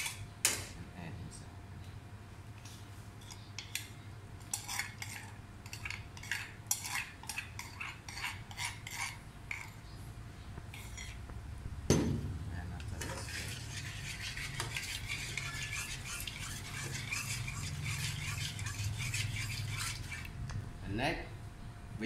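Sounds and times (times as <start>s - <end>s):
metal utensils scraping wok: 4.4s - 9.8s, 10.7s - 11.2s, 12.8s - 20.3s
low hum: 9.8s - 13.0s.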